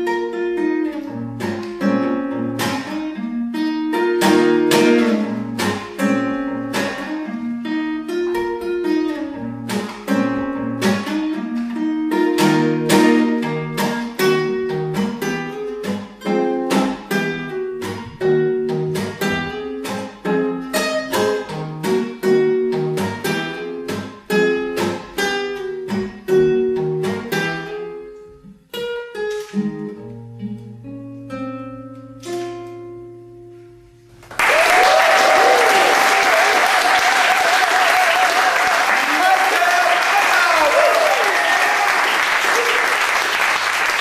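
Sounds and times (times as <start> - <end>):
fingerpicked acoustic guitar: 0.0 - 34.3
audience applause: 34.3 - 44.0.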